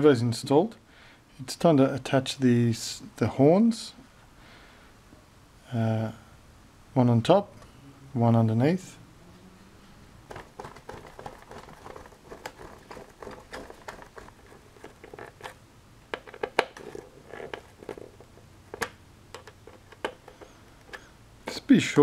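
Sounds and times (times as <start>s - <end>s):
plastic clicks and scratches: 10.3s - 21.1s.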